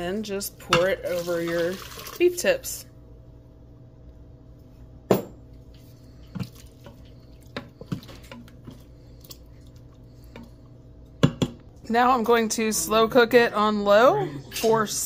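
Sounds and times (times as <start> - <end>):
liquid pouring and dripping: 1.1 - 2.2.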